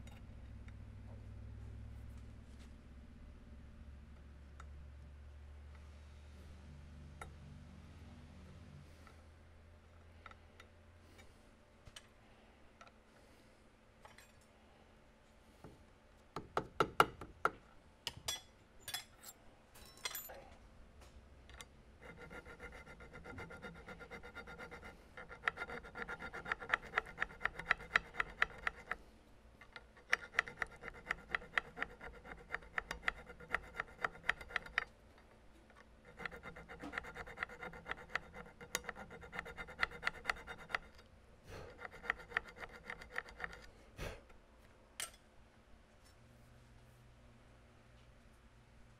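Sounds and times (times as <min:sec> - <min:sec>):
file scraping on steel: 0:22.0 - 0:29.0, 0:30.0 - 0:34.9, 0:36.0 - 0:43.8.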